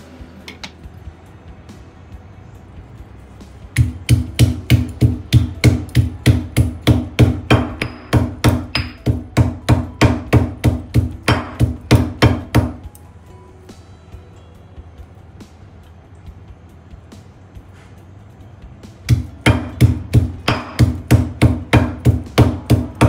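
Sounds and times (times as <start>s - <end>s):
stone pestle pounding in mortar: 3.7s - 12.8s, 19.0s - 23.0s.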